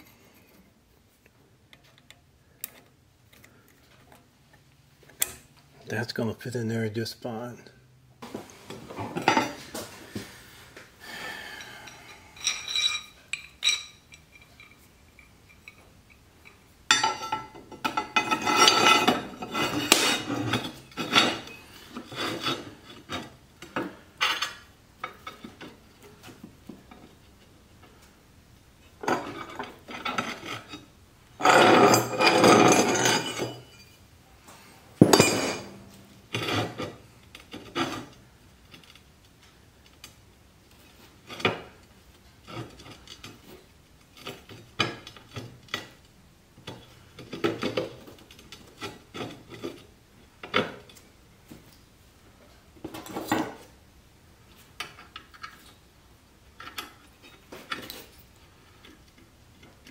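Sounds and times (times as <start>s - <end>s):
metal clinks: 11.6s - 18.3s, 35.0s - 36.0s
steel plates scraping together: 11.6s - 23.3s, 29.0s - 34.0s.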